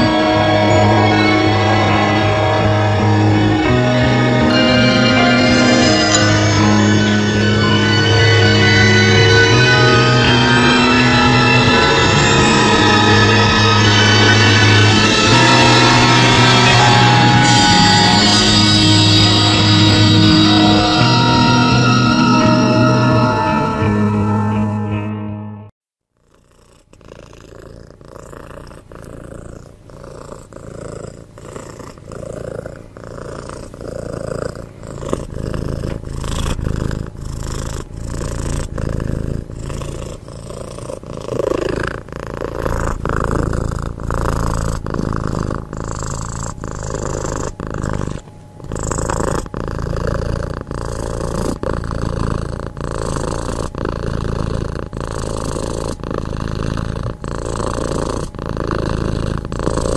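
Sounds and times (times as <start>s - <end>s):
cat purring: 0.0s - 3.0s, 26.1s - 59.9s.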